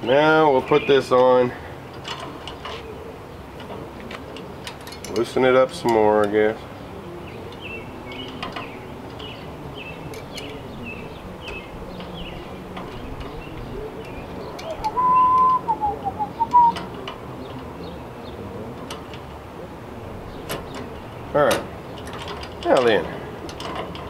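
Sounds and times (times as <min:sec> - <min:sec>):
small birds chirping: 0:00.3 - 0:23.4
loud whistled phrase: 0:14.8 - 0:16.8.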